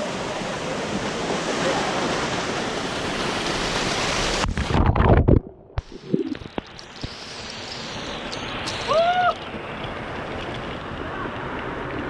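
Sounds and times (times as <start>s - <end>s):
waterfall rushing: 0.0s - 4.6s
water drumming on camera housing: 4.4s - 7.2s.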